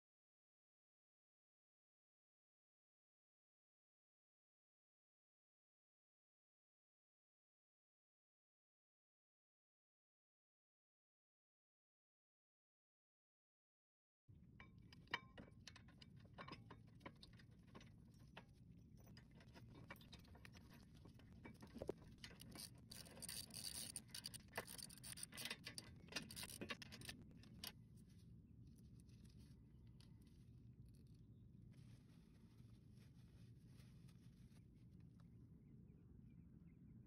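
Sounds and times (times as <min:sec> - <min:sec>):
low steady hum: 0:14.3 - 0:37.0
tools clicking and scraping: 0:19.0 - 0:27.8.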